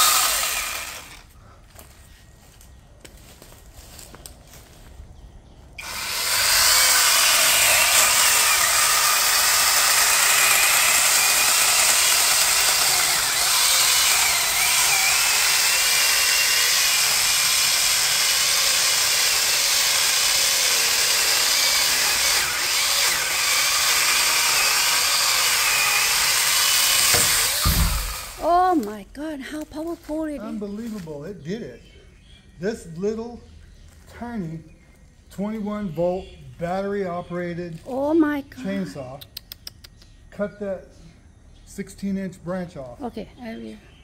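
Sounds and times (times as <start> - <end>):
battery chainsaw cutting wood: 0.0 - 1.3, 5.8 - 28.8.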